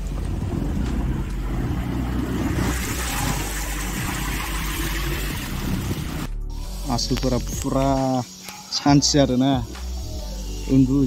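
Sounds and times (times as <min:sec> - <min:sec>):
water washing and swishing: 0:00.0 - 0:06.3
car engine running: 0:00.0 - 0:06.4.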